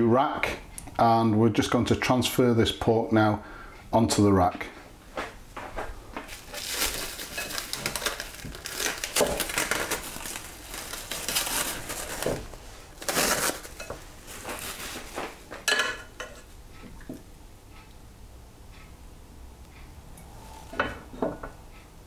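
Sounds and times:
cling film crinkling: 0:06.3 - 0:15.6.

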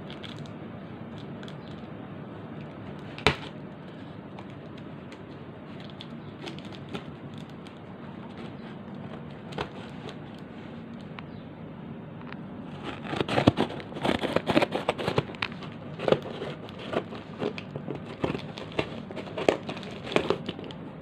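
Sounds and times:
steady low hum: 0:00.0 - 0:21.0
scissors and cardboard clicks: 0:12.8 - 0:20.8.

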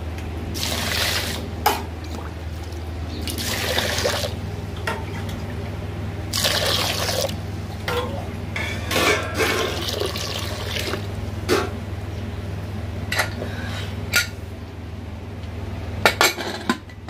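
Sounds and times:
water splashing in a pot: 0:00.6 - 0:04.4, 0:06.3 - 0:07.4, 0:09.3 - 0:11.1.

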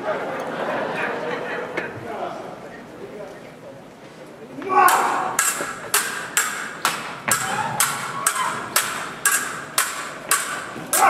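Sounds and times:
swords clashing: 0:04.6 - 0:11.0.

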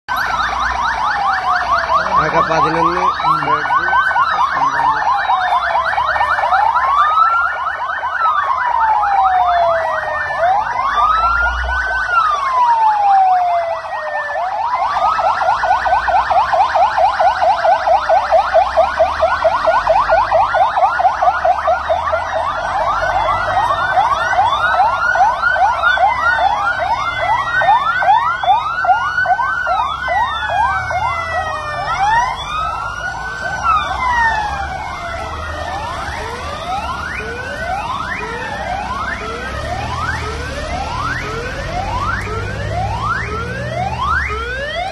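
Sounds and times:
ambulance sirens wailing: 0:00.1 - 0:44.9
siren yelps: 0:00.1 - 0:44.9.

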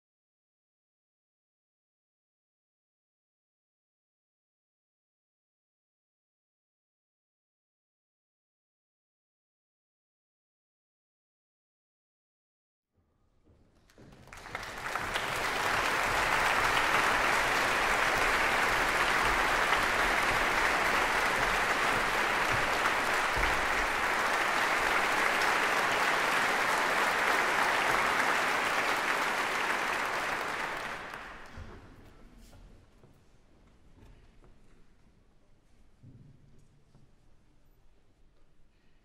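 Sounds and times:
audience applauding: 0:14.1 - 0:31.9.

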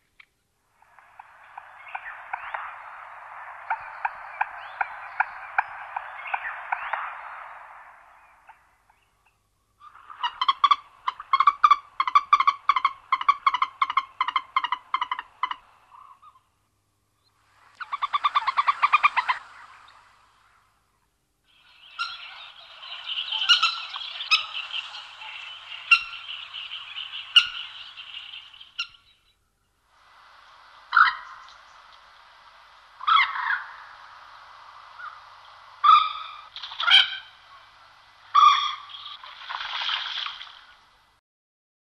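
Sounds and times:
sharp clicks of bird calls: 0:00.1 - 0:07.6, 0:30.9 - 0:32.2, 0:34.8 - 0:40.8
moorhen calling: 0:00.8 - 0:16.6, 0:17.2 - 0:40.9.

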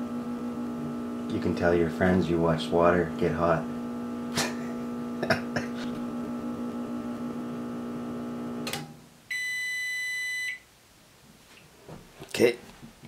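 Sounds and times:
microwave oven humming: 0:00.0 - 0:09.5
long high beep: 0:09.3 - 0:10.6.

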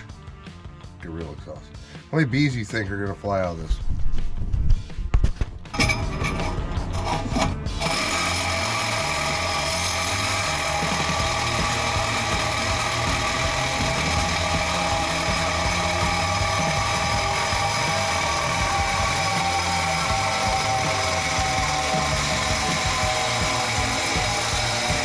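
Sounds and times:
metallic clanks and knocks: 0:05.4 - 0:07.7
power tool running: 0:05.7 - 0:25.0.

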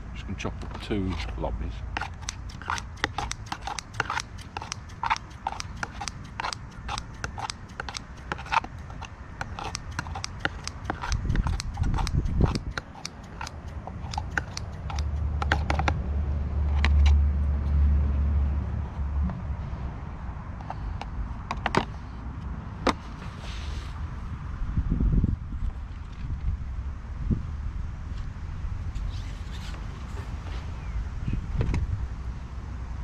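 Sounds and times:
sharp cutting clicks: 0:02.0 - 0:16.0.

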